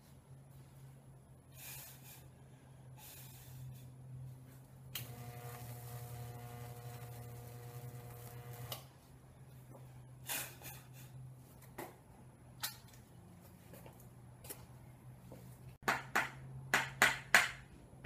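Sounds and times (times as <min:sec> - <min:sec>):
transformer electrical buzz: 0:04.9 - 0:08.9
current crackling through wood: 0:05.0 - 0:08.8.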